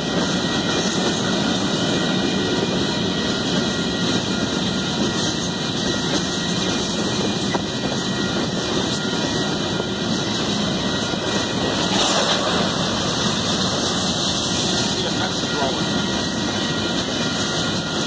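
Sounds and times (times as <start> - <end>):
freight train wheels rumbling on rail: 0.0 - 18.0.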